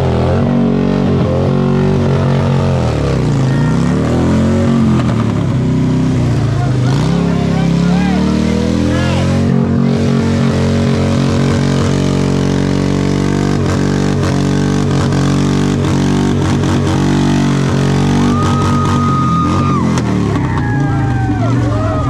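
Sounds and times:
motorcycle engine revving: 0.0 - 22.0.

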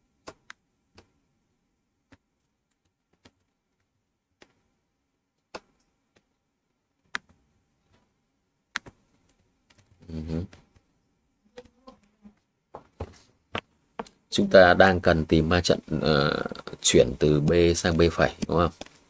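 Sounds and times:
computer mouse clicks: 7.0 - 7.4, 8.7 - 10.9.

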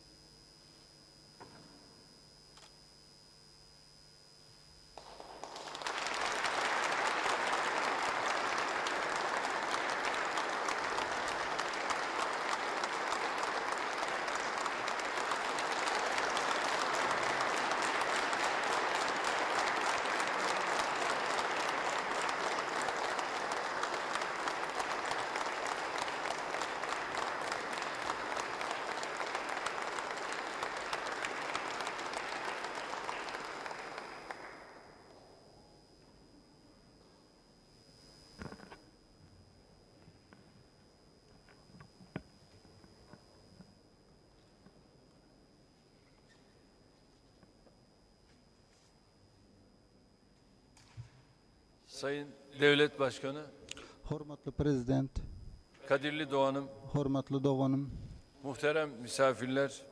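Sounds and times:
audience applause: 5.0 - 34.8.

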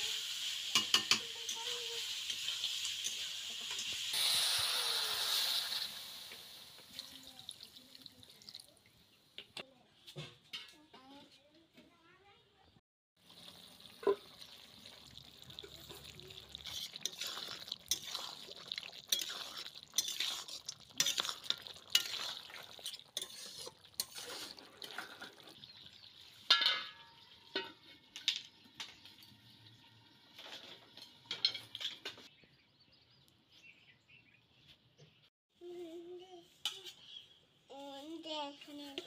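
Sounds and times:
metal spatula scraping a pan: 15.9 - 25.6
metal clang: 26.5 - 27.8.

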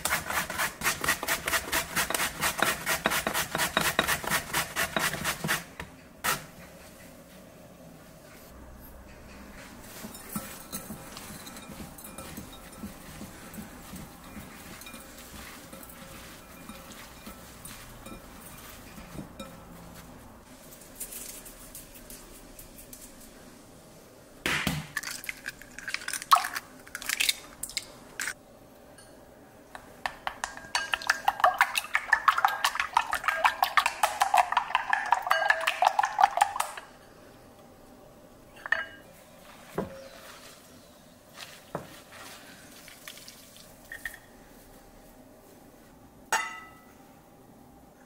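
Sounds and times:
utensil clinking against a bowl: 9.0 - 19.8, 30.0 - 36.9.

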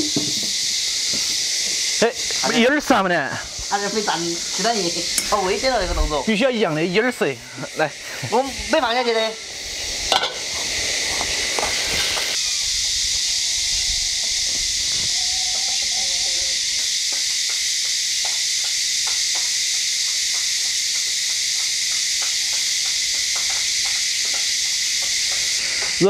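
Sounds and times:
tofu sizzling in hot oil: 8.9 - 13.5.

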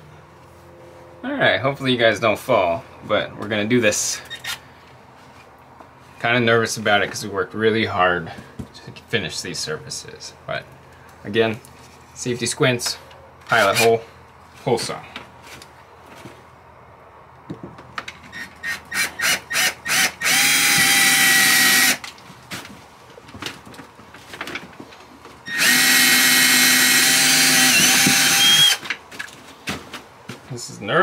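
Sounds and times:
cordless drill drilling into panel: 18.4 - 22.0, 25.5 - 28.8.

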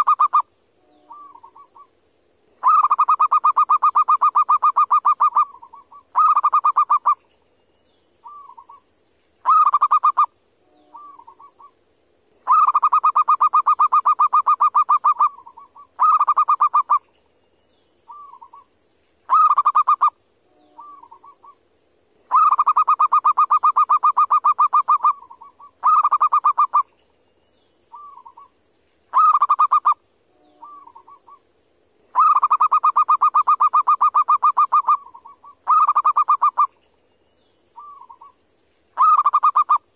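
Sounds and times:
dove cooing: 0.0 - 0.4, 2.6 - 7.2, 9.4 - 10.3, 12.5 - 17.0, 19.3 - 20.1, 22.3 - 26.8, 29.1 - 30.0, 30.6 - 31.4, 32.2 - 36.7, 39.0 - 39.8
steady high-pitched hiss: 0.0 - 39.9.

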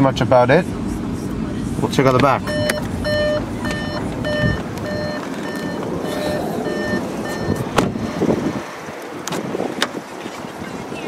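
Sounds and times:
car warning chime beeping: 2.4 - 8.7.

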